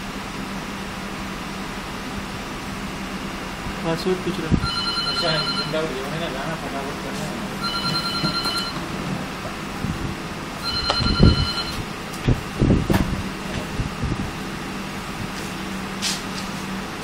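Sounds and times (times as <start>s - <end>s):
steady low hum: 0.0s - 17.0s
phone ringing electronic tone: 4.6s - 6.4s, 7.6s - 8.9s, 10.6s - 11.9s.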